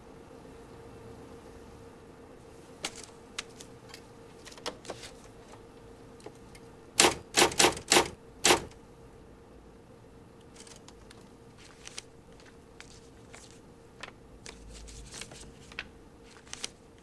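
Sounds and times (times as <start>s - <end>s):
faint steady hum: 0.0s - 17.0s
typewriter keys clicking: 7.0s - 8.8s.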